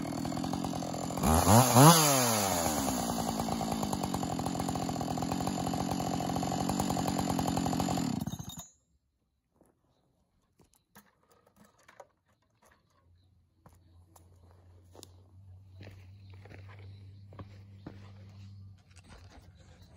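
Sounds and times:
chainsaw engine idling: 0:00.0 - 0:08.7
chainsaw throttle blips: 0:00.0 - 0:08.7.

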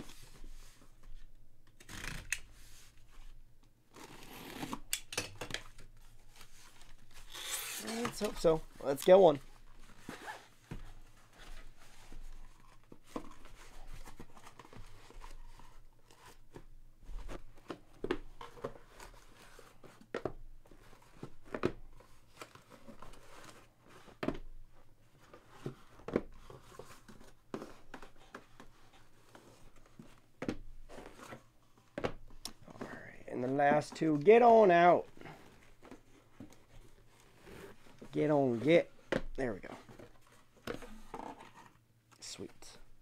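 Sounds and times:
cardboard boxes tapping and scraping: 0:09.4 - 0:41.8.

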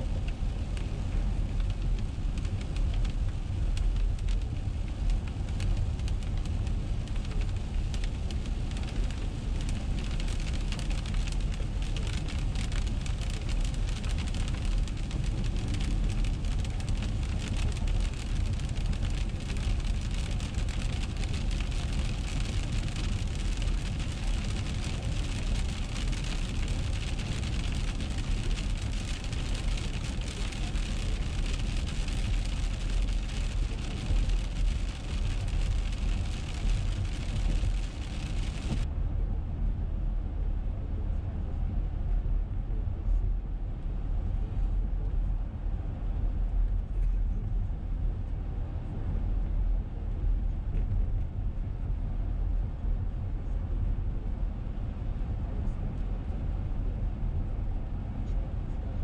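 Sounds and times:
engine and tyres rumbling: 0:00.0 - 0:59.0
tyre spray and rain hiss: 0:08.2 - 0:38.8.

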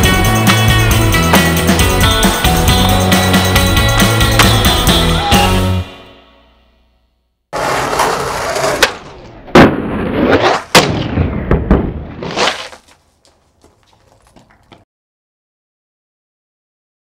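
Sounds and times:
skateboard wheels rolling on concrete: 0:00.0 - 0:05.4, 0:07.5 - 0:14.8
skateboard deck cracking and slapping: 0:07.6 - 0:14.8.

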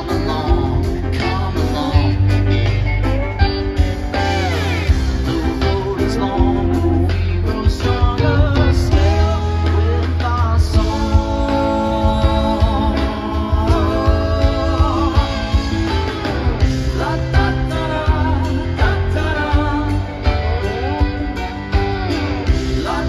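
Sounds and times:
live rock band playing: 0:00.0 - 0:23.0
sliding bending guitar lead line: 0:00.0 - 0:23.0.

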